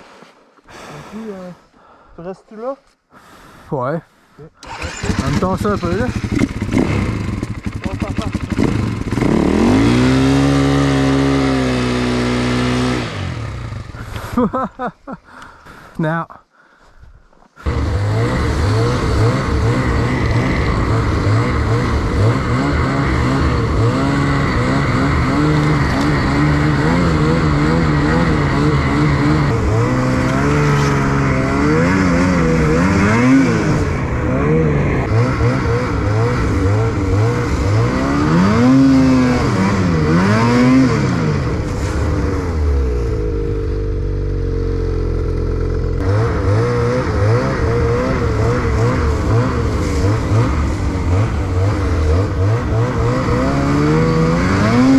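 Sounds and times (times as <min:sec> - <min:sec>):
snowmobile engine revving: 0:04.6 - 0:14.9, 0:17.6 - 0:54.9.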